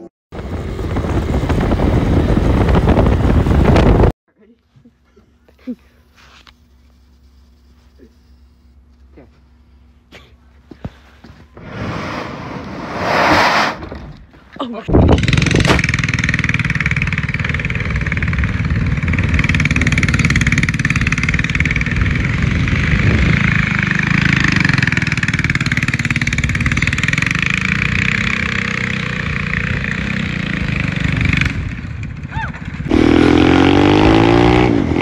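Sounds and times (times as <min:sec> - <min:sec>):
go-kart engine running: 0:15.0 - 0:35.0.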